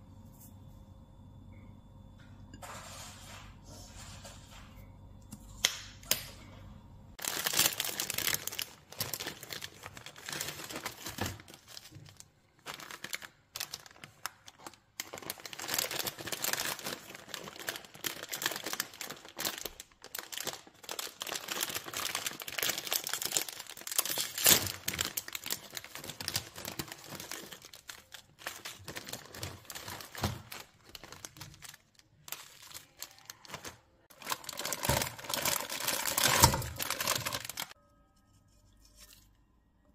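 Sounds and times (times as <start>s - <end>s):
plastic packets crinkling: 7.2s - 37.8s.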